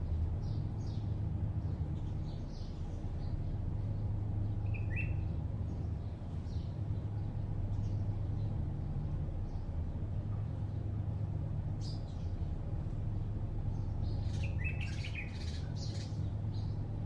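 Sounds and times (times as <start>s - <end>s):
distant city traffic hum: 0.0s - 17.0s
high bird chirps: 4.6s - 5.3s, 14.1s - 16.7s.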